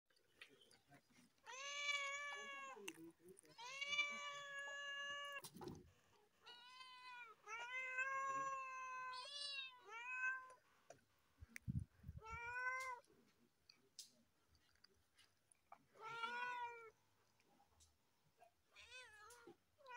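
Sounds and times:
cats meowing: 1.4s - 2.9s, 3.5s - 5.8s, 6.4s - 10.6s, 12.1s - 13.1s, 15.9s - 17.0s, 18.8s - 19.9s.

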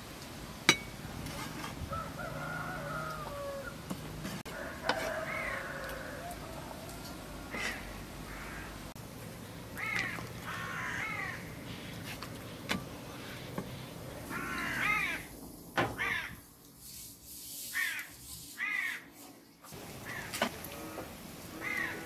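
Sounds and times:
crows cawing: 4.5s - 6.3s, 7.5s - 8.9s, 9.8s - 12.0s, 14.3s - 15.3s, 15.9s - 16.4s, 17.7s - 19.1s, 20.0s - 20.8s, 21.5s - 22.0s.

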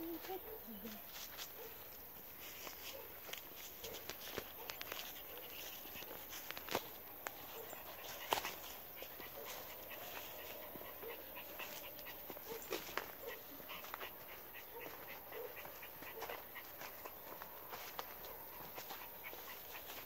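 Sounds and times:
twigs and dry leaves crackling: 0.0s - 20.0s
dog panting and whimpering: 7.4s - 20.0s.

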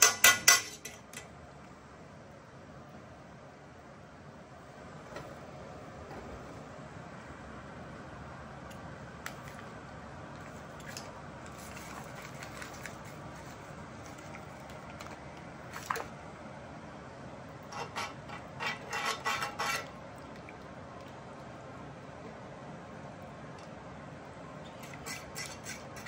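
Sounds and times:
metal utensil scraping a pan: 17.7s - 20.0s.

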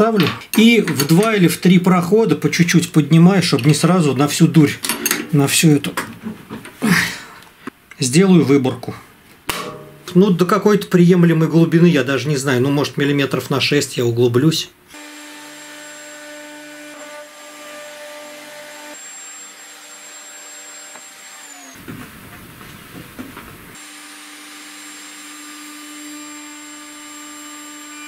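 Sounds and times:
router motor hum and whine: 14.9s - 21.8s, 23.8s - 28.0s
router cutting wood: 14.9s - 21.9s, 23.7s - 28.0s.

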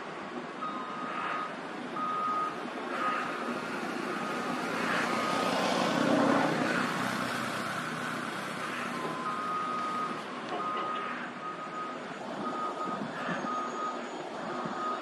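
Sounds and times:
diesel engine running: 0.0s - 15.0s
reversing alarm beeping: 0.6s - 4.6s, 8.9s - 15.0s.

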